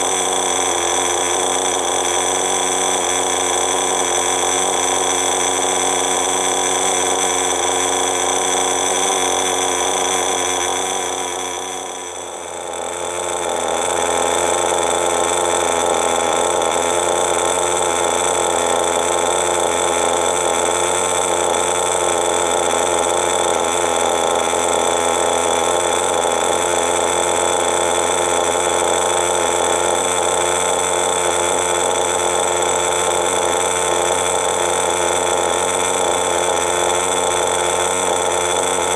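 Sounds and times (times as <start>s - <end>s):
model engine idling: 0.0s - 38.9s.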